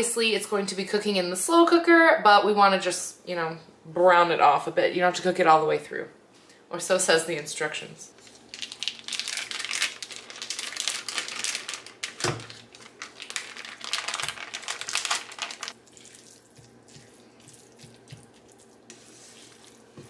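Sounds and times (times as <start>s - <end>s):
plastic wrapper crinkling: 8.2s - 16.8s.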